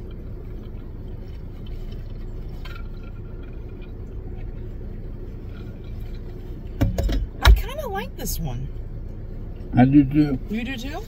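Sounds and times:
faint clicks and rustles: 0.0 - 7.4
car cabin hum: 0.0 - 11.0.

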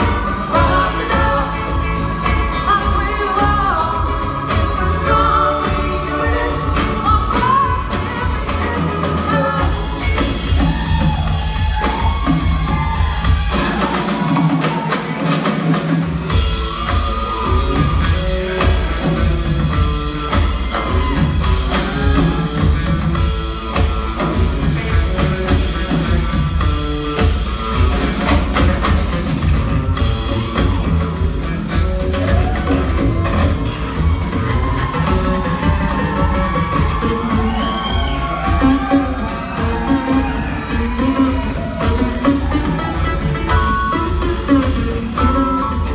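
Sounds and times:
woman singing: 0.0 - 10.1
drum kit: 0.0 - 45.9
electric guitar: 0.0 - 45.9
upright bass: 0.0 - 45.9.

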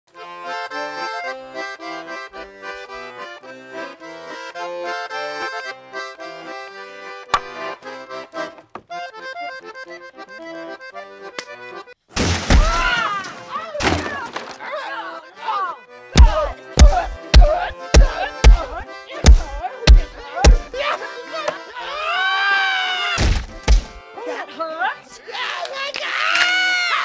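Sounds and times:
jaunty accordion music: 0.1 - 12.1, 13.3 - 22.6, 23.2 - 25.5
wooden booth crashing and splintering: 12.1 - 14.7, 23.2 - 24.0
sharp slap: 16.2 - 20.7, 23.2 - 24.0.

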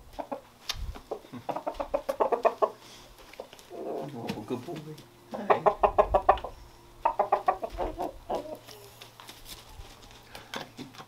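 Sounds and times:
rooster clucking: 0.1 - 0.5, 1.1 - 4.3, 5.3 - 9.2.

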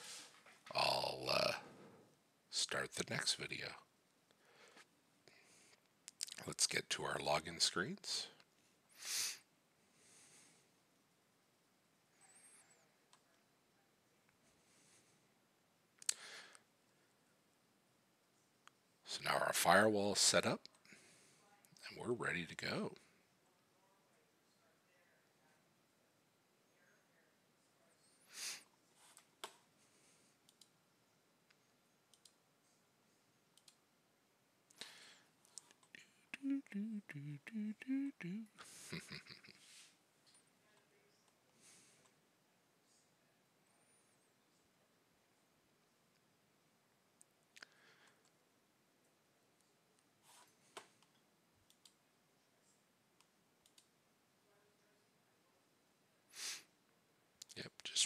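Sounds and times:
computer mouse clicks: 32.1 - 32.4, 33.6 - 33.8, 53.2 - 53.9.

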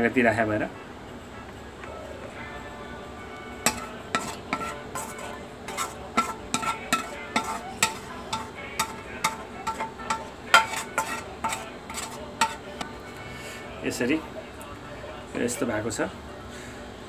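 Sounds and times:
metal spoon scraping a wok: 3.6 - 12.9.

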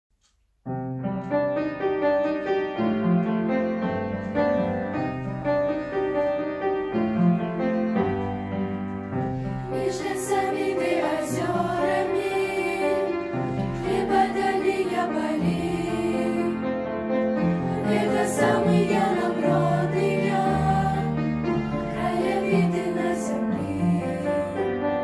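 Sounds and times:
sustained keyboard chords: 0.9 - 25.0
girls singing: 9.6 - 16.6, 17.7 - 24.7.

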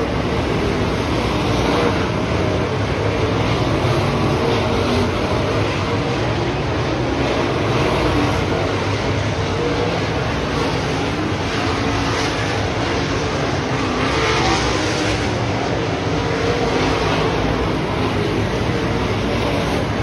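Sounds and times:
race car engines droning: 0.0 - 20.0.

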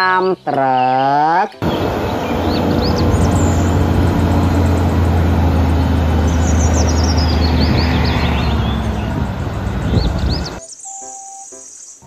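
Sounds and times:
birds chirping: 0.0 - 12.0
diesel engine humming: 1.6 - 10.6.

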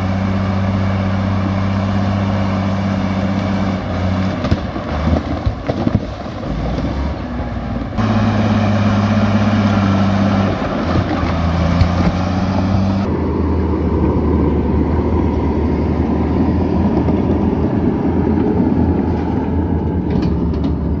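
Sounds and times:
diesel engine running under load: 0.0 - 21.0
blade pushing rocks and mud: 1.2 - 13.1.

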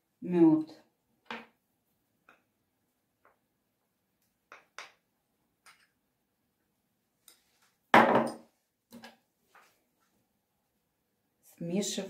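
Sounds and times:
loud knock on table: 8.0 - 8.4.

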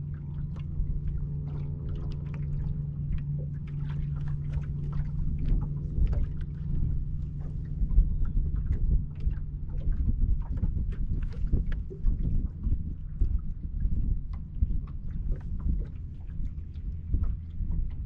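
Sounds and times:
steady low hum: 0.0 - 18.0
waves slapping boat hull: 0.0 - 18.0
wind rumble on microphone: 0.0 - 18.0.

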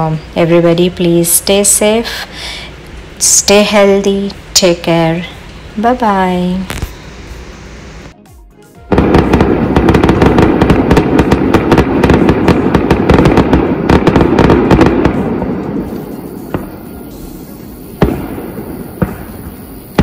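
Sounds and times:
fireworks crackling pops: 6.6 - 8.2, 8.9 - 20.0
firework sharp bang: 8.9 - 20.0.

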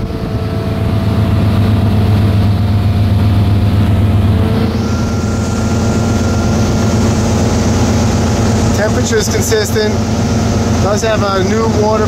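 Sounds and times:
boat engine humming: 0.0 - 12.0
rush of wind and water: 0.0 - 12.0.

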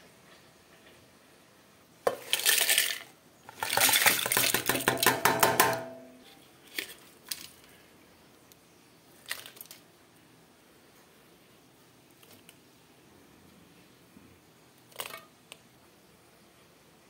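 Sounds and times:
chillies rattling into steel pot: 2.1 - 6.0.

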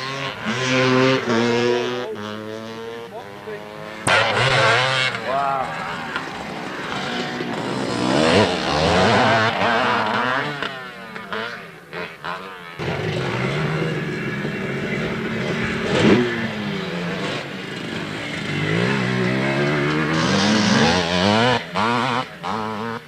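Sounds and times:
dirt bike engines revving: 0.0 - 23.0.

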